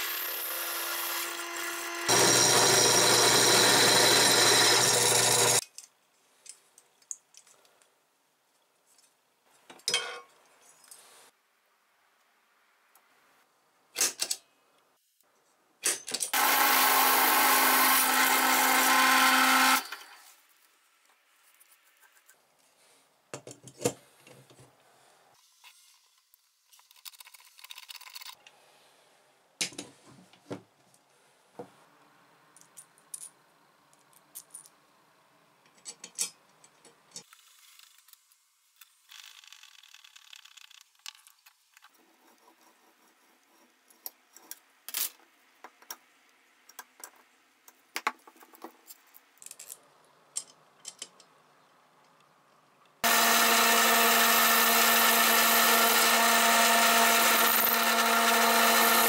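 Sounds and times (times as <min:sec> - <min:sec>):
drill press drilling steel: 0:00.0 - 0:05.6, 0:16.4 - 0:20.2, 0:53.0 - 0:59.0.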